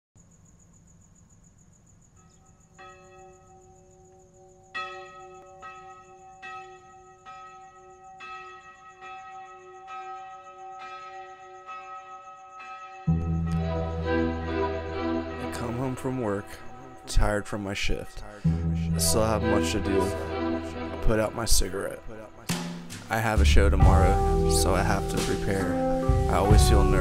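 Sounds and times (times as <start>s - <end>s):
soft bell-like chimes: 2.2s - 14.7s.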